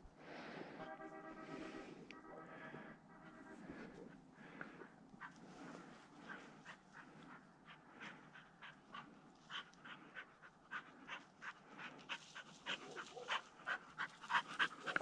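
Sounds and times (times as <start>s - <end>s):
dog panting fast: 3.3s - 15.0s.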